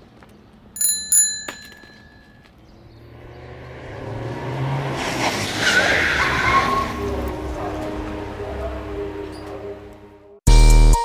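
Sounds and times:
metallic bell-like dings: 0.8 - 2.5
car engine approaching: 2.6 - 10.4.

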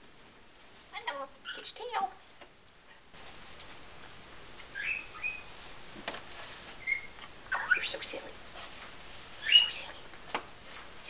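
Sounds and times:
parrot whistled chirps: 4.7 - 5.5, 6.8 - 7.9, 9.4 - 9.8.

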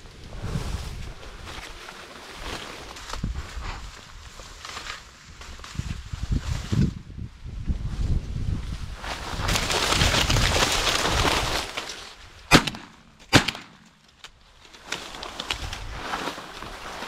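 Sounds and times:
corn stalks rustling: 0.0 - 7.2, 7.8 - 17.0
sharp loud cracks: 12.5 - 14.0.

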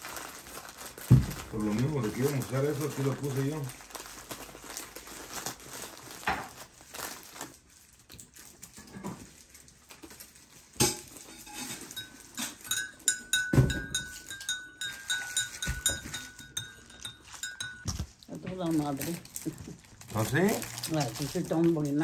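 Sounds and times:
plastic wrapper crinkling: 0.0 - 12.4, 17.2 - 22.0
spoon clinking in mug: 10.8 - 18.1.

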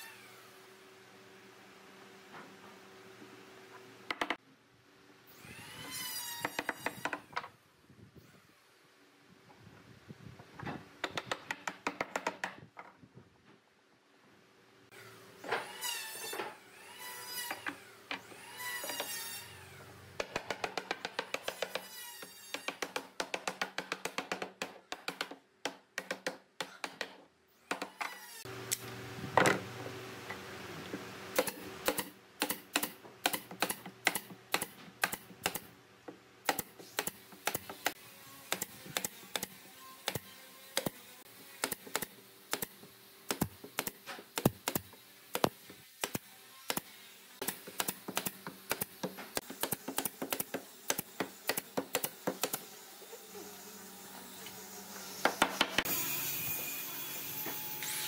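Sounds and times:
nail gun firing: 31.4 - 35.7, 41.6 - 52.6.

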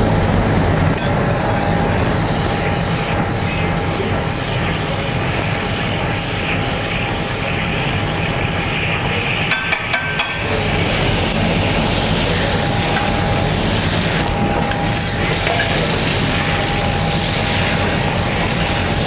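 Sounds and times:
butter heating in a pan: 0.0 - 19.0
kitchen hum and hiss: 0.0 - 19.0
utensil tapping a pan: 9.5 - 10.5.

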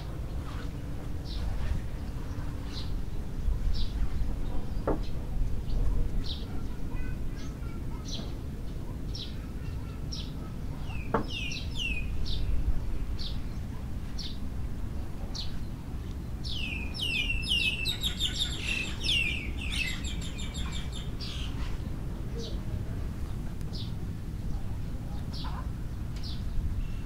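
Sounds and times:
steady low rumble: 11.6 - 17.6, 19.3 - 27.0
birds giving quick falling calls: 16.6 - 21.8.

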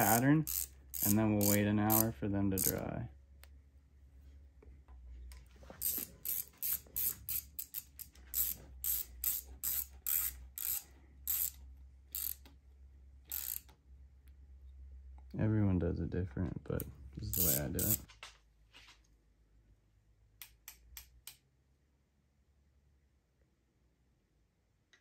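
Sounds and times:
socket ratchet clicking: 0.0 - 2.8, 5.8 - 12.6, 13.3 - 13.8, 17.3 - 18.1.

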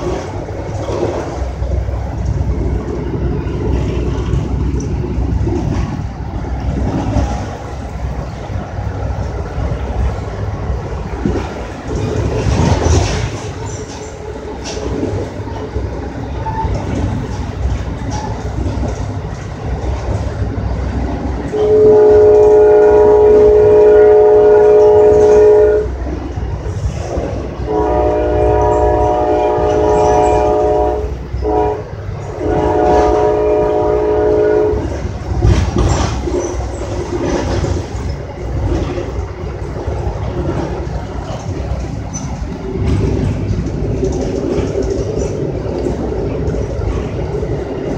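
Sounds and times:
train rumbling and clattering on rails: 0.0 - 47.9
multi-note train horn: 21.5 - 26.0, 27.6 - 35.6.

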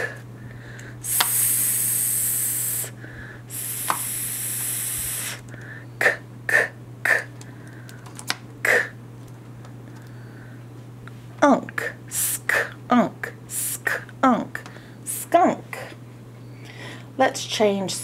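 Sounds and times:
woman hissing s sound: 1.0 - 2.9, 3.5 - 5.4, 6.0 - 7.3, 12.1 - 12.7, 13.5 - 14.0
woman saying short k sounds: 11.4 - 16.0.

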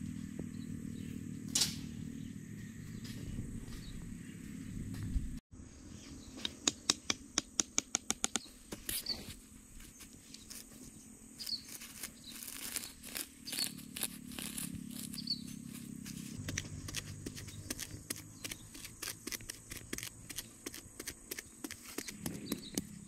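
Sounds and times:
bird chirping: 2.0 - 4.9, 10.3 - 19.8, 21.3 - 23.0
hands rustling grass: 8.7 - 23.0.

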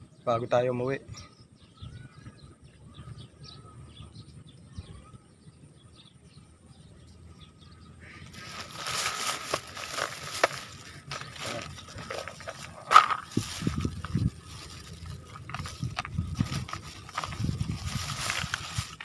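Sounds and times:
faint bird chirps: 1.0 - 8.9
hands rustling fishing line: 8.3 - 19.0.

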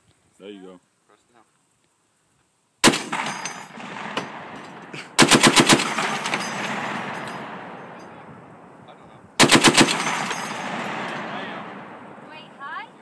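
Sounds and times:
heavy machine gun bursts: 2.8 - 8.3, 9.4 - 12.4
gunfire echo: 2.8 - 13.0.

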